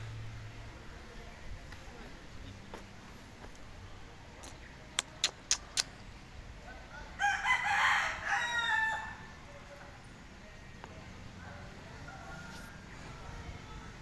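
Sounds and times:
rooster crowing: 0:06.9 - 0:09.3.

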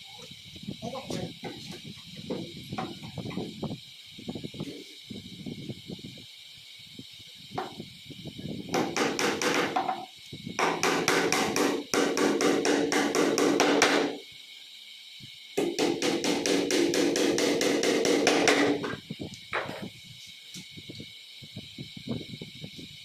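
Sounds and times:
hammer tapping a nail: 0:08.7 - 0:10.0, 0:10.6 - 0:14.2, 0:15.6 - 0:18.8.

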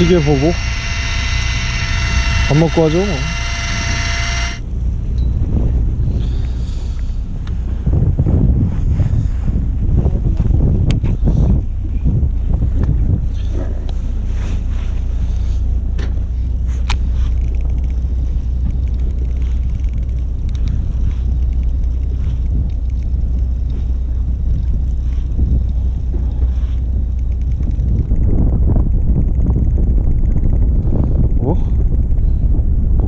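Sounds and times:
boat engine low rumble: 0:00.0 - 0:33.0.

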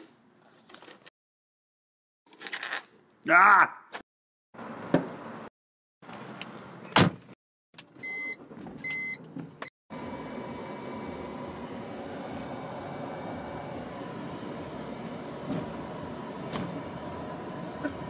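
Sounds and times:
air conditioning blowing air: 0:10.0 - 0:18.0.

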